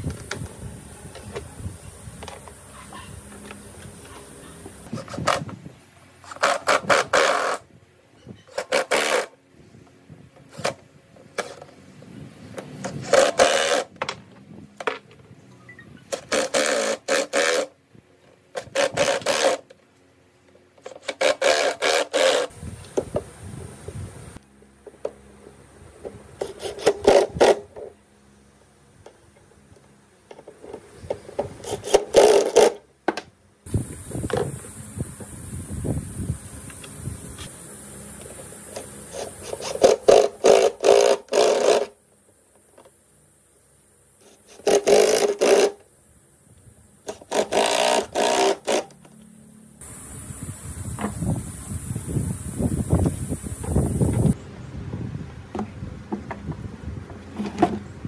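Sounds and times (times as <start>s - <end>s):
hand tool scraping a workpiece: 6.2s - 7.7s, 8.4s - 9.4s, 12.8s - 14.0s, 16.0s - 17.7s, 18.6s - 19.7s, 20.8s - 22.5s, 26.4s - 27.9s, 30.5s - 32.8s, 38.8s - 41.9s, 44.2s - 45.8s, 47.1s - 49.0s.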